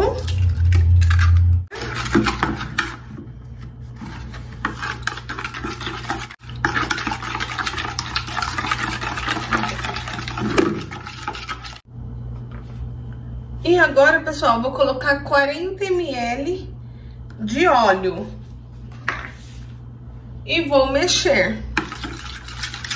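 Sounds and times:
liquid sloshing: 0:00.0 - 0:11.8, 0:21.8 - 0:22.9
utensil scraping plastic bowl: 0:00.1 - 0:11.8, 0:21.8 - 0:22.9.

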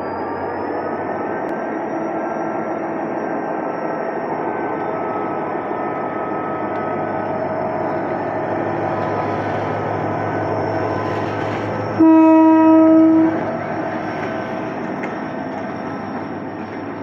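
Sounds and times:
locomotive engine drone: 0:00.0 - 0:17.0
locomotive horn blast: 0:11.9 - 0:13.6.

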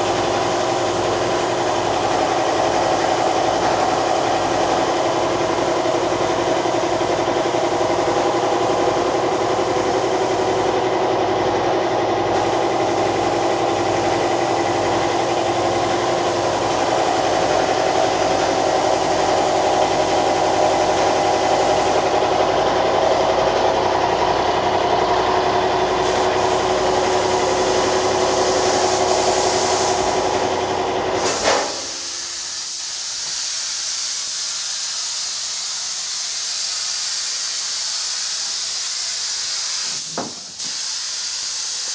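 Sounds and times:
steady hiss: 0:31.2 - 0:41.9.

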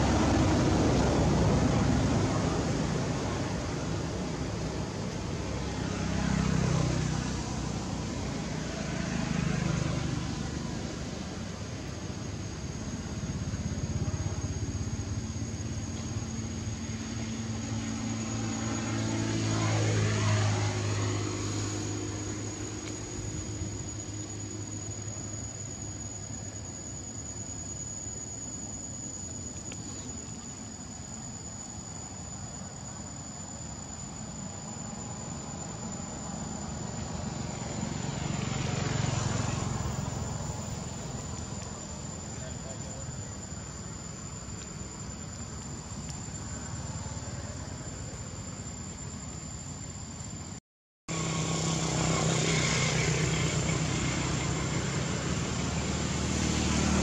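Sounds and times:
insects droning: 0:00.0 - 0:57.0
vehicle engine passing by: 0:05.3 - 0:11.7, 0:13.3 - 0:25.1, 0:35.8 - 0:41.6, 0:51.1 - 0:57.0.

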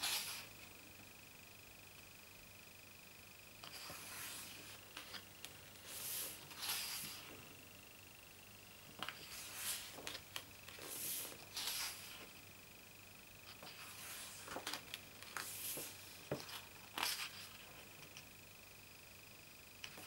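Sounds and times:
pages turning: 0:03.6 - 0:07.4, 0:09.0 - 0:12.3, 0:13.5 - 0:17.7.

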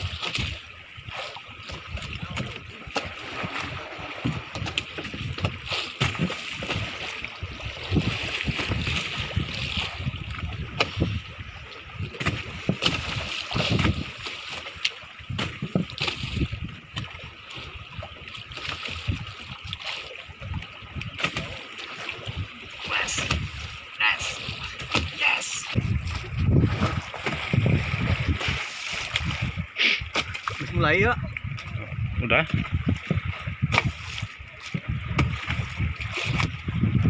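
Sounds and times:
water splashing against boat hull: 0:00.0 - 0:37.0
low rumbling: 0:22.4 - 0:37.0.

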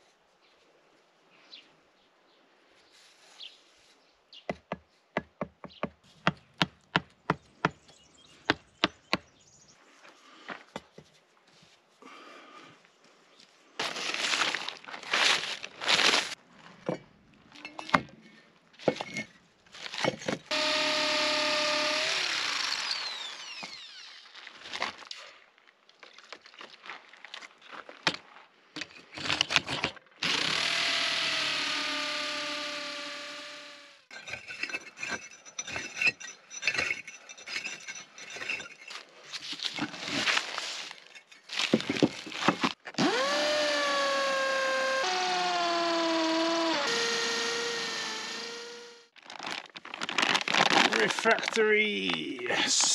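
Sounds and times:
bricks and steel rod handled: 0:13.8 - 0:20.5, 0:34.1 - 0:42.8
electric drill whine: 0:20.5 - 0:24.3, 0:30.2 - 0:34.1, 0:43.0 - 0:49.1.

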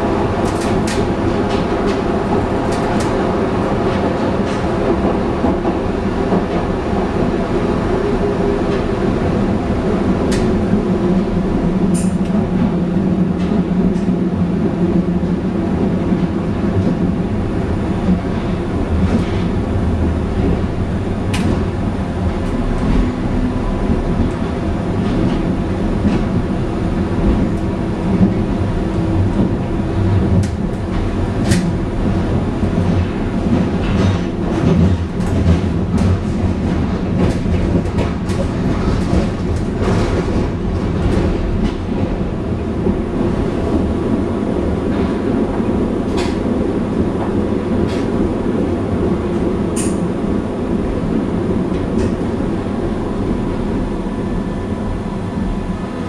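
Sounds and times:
train rumbling in tunnel: 0:00.0 - 0:56.0.

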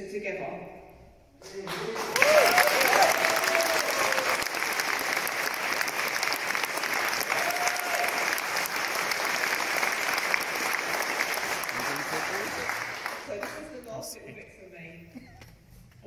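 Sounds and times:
audience applauding: 0:01.4 - 0:13.8.

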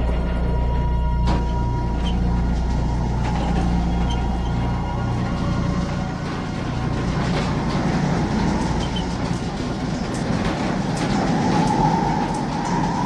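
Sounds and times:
high ringing tone: 0:00.0 - 0:09.2
locomotive wheels clattering on rails: 0:00.0 - 0:13.0.

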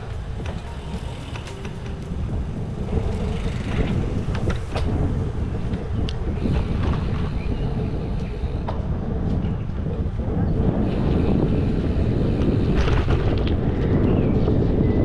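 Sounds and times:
bike clicks and rattles: 0:00.0 - 0:14.8
bicycle tyre noise: 0:00.0 - 0:15.0
wind rumbling on microphone: 0:00.0 - 0:15.0.

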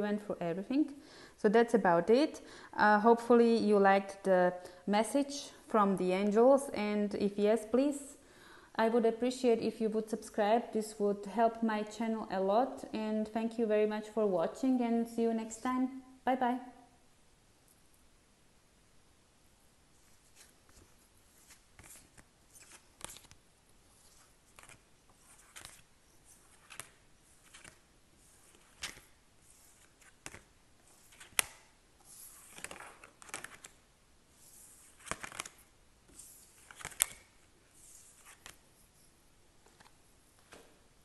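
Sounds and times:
cards sliding on table: 0:37.8 - 0:38.6.

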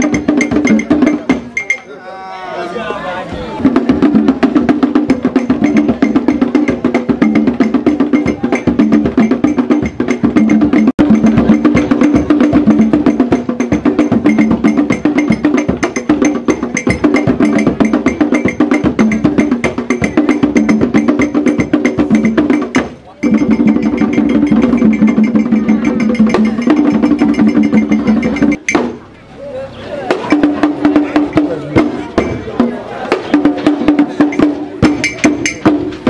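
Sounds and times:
rapid drum strokes: 0:00.0 - 0:01.8, 0:03.3 - 0:29.1, 0:30.0 - 0:36.0
clicking ringing percussion: 0:00.0 - 0:01.9.

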